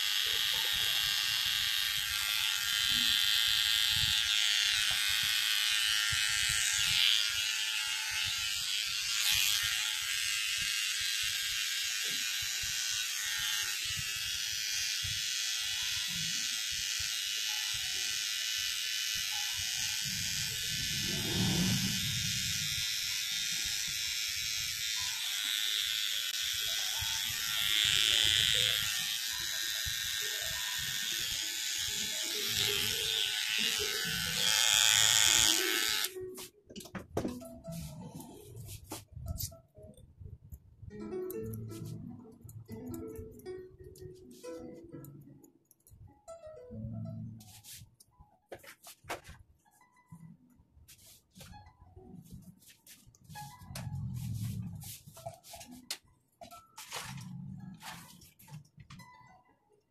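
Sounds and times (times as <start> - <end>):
electric hair clippers buzzing: 0.0 - 36.2
low rumble: 20.9 - 22.5.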